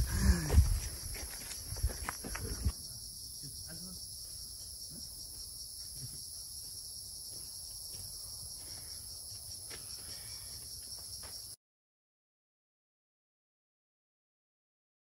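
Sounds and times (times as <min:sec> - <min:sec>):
forest insects droning: 0:00.0 - 0:11.6.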